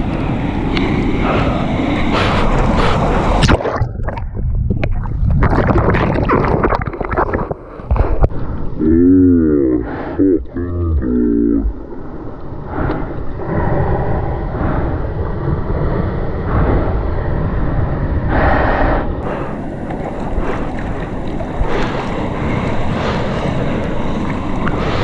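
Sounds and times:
waves breaking: 0.0s - 8.4s, 19.2s - 25.0s
wind buffeting microphone: 0.0s - 8.8s, 11.7s - 25.0s
water sloshing and slapping: 2.2s - 8.3s, 19.2s - 25.0s.

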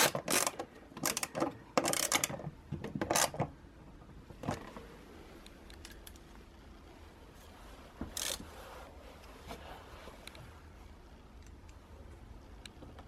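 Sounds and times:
hand ratchet clicking: 0.0s - 2.4s, 8.2s - 8.4s.

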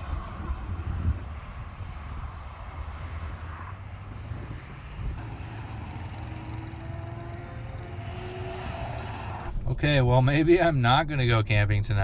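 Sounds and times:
car rumbling: 5.1s - 9.9s
faint rising tones: 5.2s - 9.6s.

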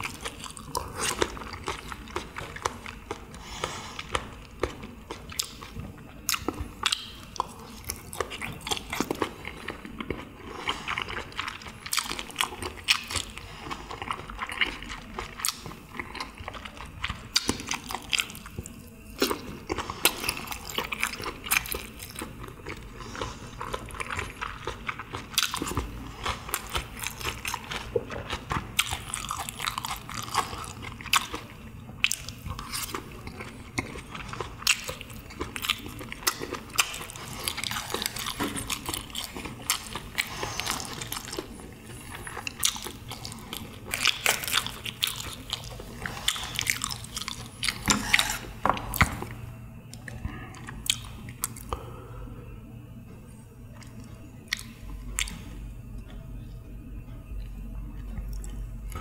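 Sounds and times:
wet chewing and crunching: 0.0s - 51.8s, 52.9s - 59.0s.

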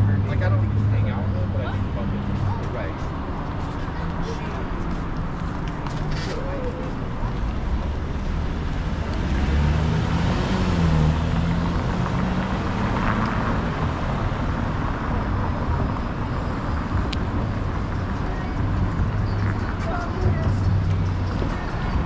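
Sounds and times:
traffic rumble: 0.0s - 22.0s
car passing by: 5.9s - 17.2s.

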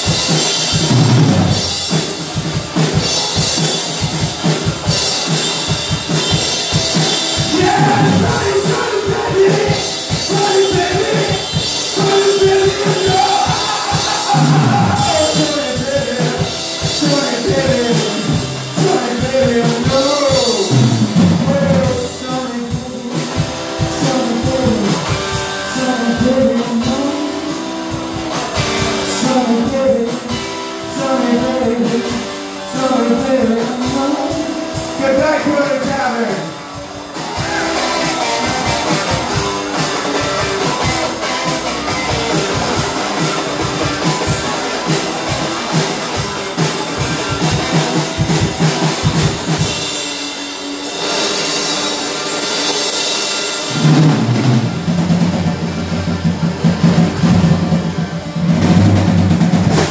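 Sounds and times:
drum kit: 0.0s - 59.9s
electric guitar: 0.0s - 59.9s
man singing: 7.4s - 36.6s.

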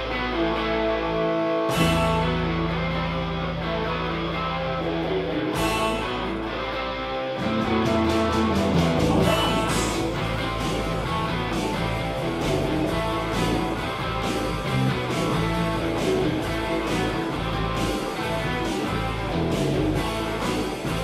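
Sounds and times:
bass guitar: 0.0s - 21.0s
electric guitars: 0.0s - 21.0s
electronic drum kit: 1.7s - 3.0s, 5.6s - 6.5s, 7.4s - 21.0s.

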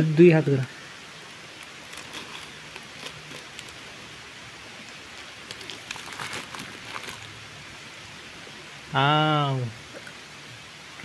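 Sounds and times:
steady hiss: 0.0s - 11.0s
foil packet crinkling: 1.5s - 4.0s, 4.8s - 7.4s.

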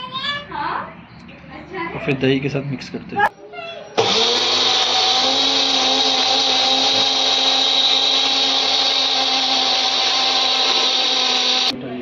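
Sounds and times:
mixer grinder motor whine: 4.0s - 11.8s.

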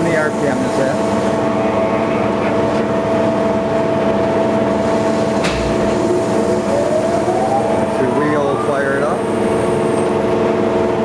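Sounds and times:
grinder machine hum and whine: 0.0s - 11.0s
rising tone: 5.6s - 9.5s.

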